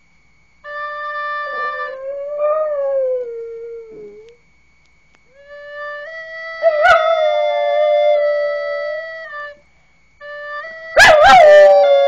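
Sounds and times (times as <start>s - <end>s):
recorder notes: 0.4s - 12.0s
dog howling: 1.5s - 4.3s, 11.0s - 12.0s.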